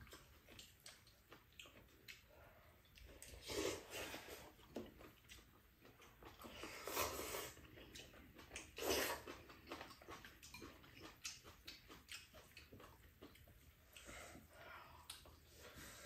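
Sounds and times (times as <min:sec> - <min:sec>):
soft chewing: 0:00.0 - 0:16.0
noodles slurped: 0:03.0 - 0:14.5.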